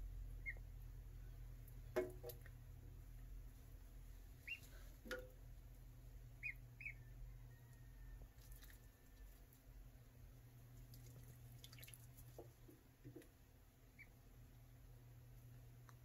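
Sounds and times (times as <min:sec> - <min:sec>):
low steady hum: 0:00.0 - 0:16.0
ducklings paddling in water: 0:00.2 - 0:16.0
ducklings peeping: 0:00.3 - 0:00.8, 0:04.4 - 0:04.8, 0:06.3 - 0:07.3, 0:13.8 - 0:14.2
knocks against steel sink: 0:02.0 - 0:02.4.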